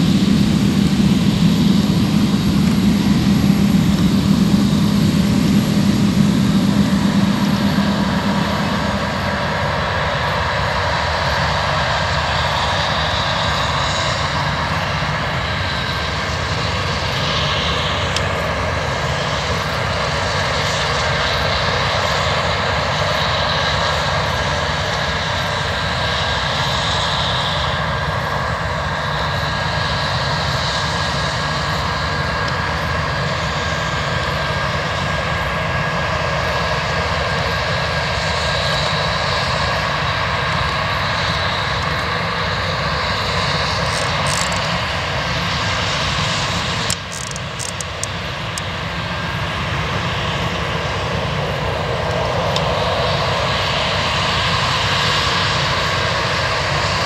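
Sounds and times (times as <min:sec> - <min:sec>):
combine harvester engine drone: 0:00.0 - 0:57.0
constant high whine: 0:00.0 - 0:57.0.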